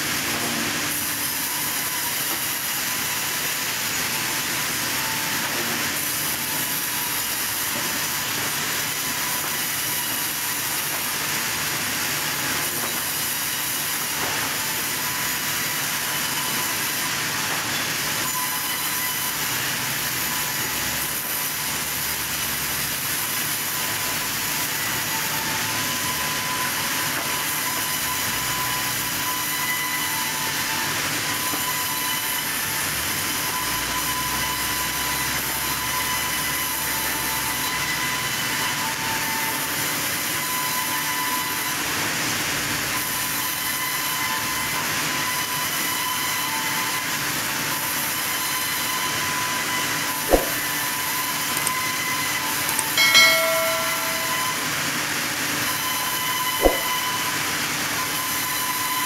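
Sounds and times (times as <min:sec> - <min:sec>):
band saw cutting log: 0:42.9 - 0:59.0.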